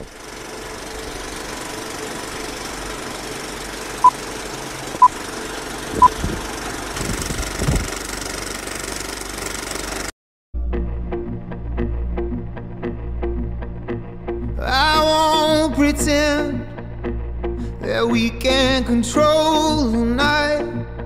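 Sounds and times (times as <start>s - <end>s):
film projector rattling whir: 0.0s - 10.1s.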